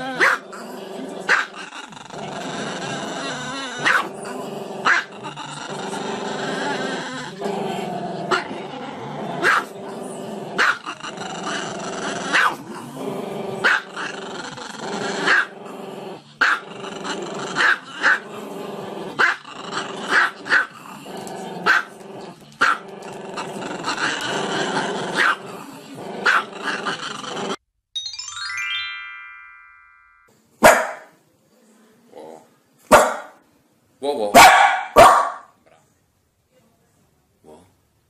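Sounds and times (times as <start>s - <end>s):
dog growling: 0.0s - 27.6s
dog barking: 0.2s - 0.4s, 3.8s - 4.1s, 4.8s - 5.1s, 9.4s - 9.7s, 10.6s - 10.8s, 12.3s - 12.6s, 13.6s - 13.8s, 15.3s - 15.5s, 20.1s - 20.7s, 21.6s - 21.9s, 25.2s - 25.4s, 26.2s - 26.5s, 30.6s - 31.1s, 32.9s - 33.4s, 34.3s - 35.6s.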